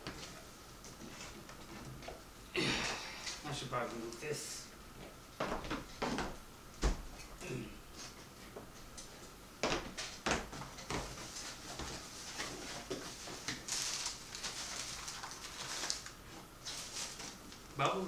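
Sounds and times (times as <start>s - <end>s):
packing paper rustling: 11.2s - 17.7s.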